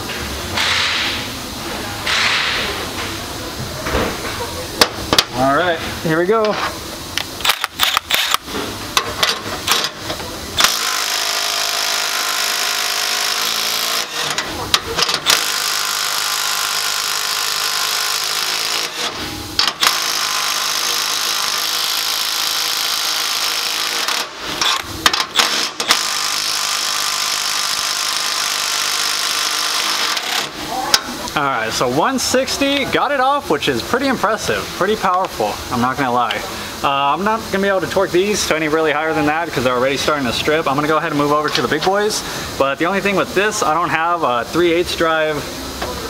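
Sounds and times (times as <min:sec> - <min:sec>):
impact wrench hammering: 0:00.6 - 0:01.2, 0:02.1 - 0:02.7, 0:09.0 - 0:30.6.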